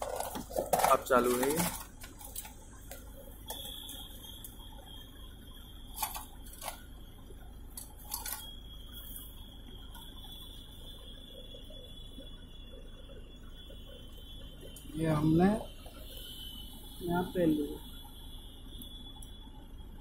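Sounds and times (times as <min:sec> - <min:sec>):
faint high-pitched whine: 0:00.0 - 0:20.0.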